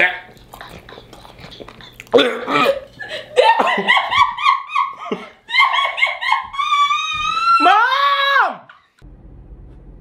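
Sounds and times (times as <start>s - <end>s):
man laughing high-pitched: 1.6s - 7.1s.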